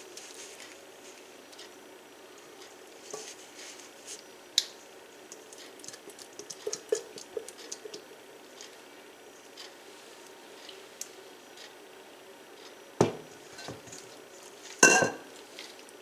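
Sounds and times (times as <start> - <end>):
spatula scraping bowl: 3.1 - 3.4
creamy mixture squishing: 5.3 - 8.8.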